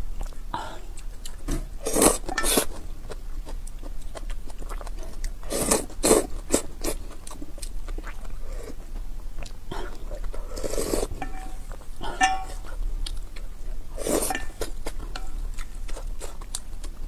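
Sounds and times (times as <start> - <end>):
wet chewing and lip-smacking: 0.1 - 11.9, 12.7 - 17.0
noodles being slurped: 1.8 - 2.7, 5.5 - 7.0, 9.9 - 11.2, 14.0 - 14.8.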